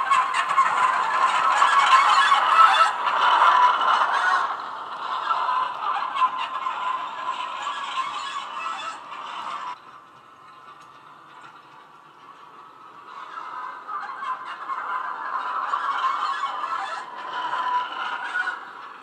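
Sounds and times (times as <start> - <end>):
model wagons rattling on track: 0.0 - 19.0.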